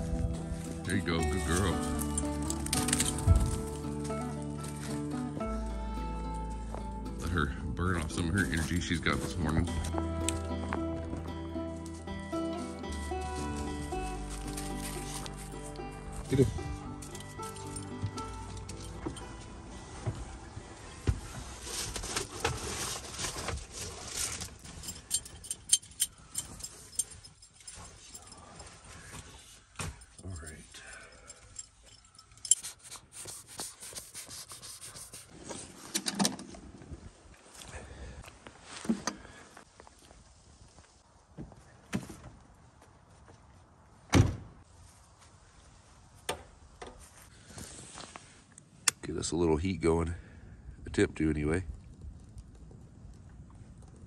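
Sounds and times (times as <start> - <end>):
clothes rustling: 12.6 - 15.8
footfalls on van floor: 18.0 - 24.4.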